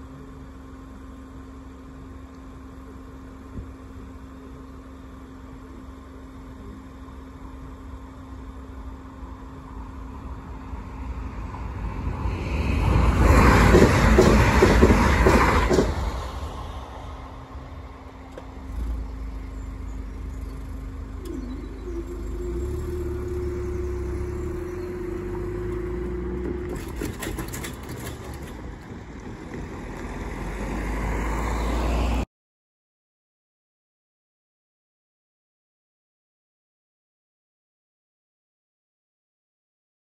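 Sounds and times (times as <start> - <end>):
crossing barrier mechanism hum: 0.0 - 32.2
car engine: 0.0 - 32.3
train rumble: 9.3 - 31.2.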